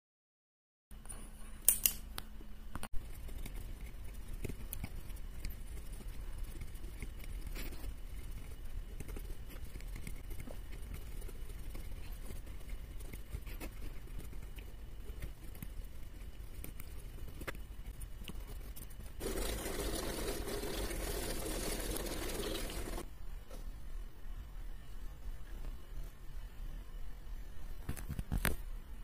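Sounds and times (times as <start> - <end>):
pencil scribbling rapidly: 3.0 - 23.0.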